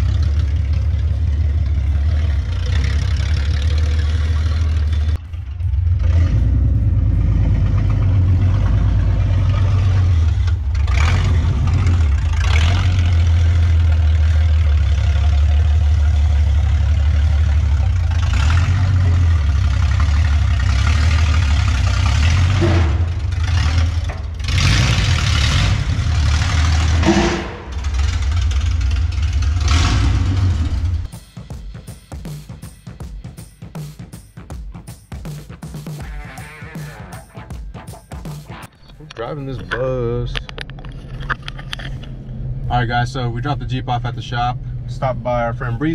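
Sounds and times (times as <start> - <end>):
engine exhaust rumble: 0.0 - 31.1, 38.6 - 45.9.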